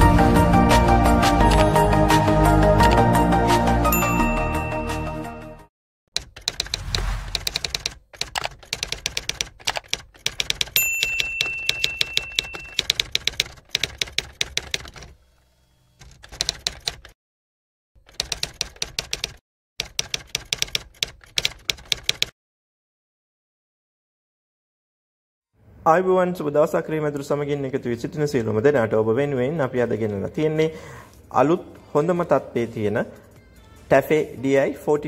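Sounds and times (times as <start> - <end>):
typewriter keystroke clicks: 6.2 - 15.1
typewriter bell ding: 10.7 - 13.1.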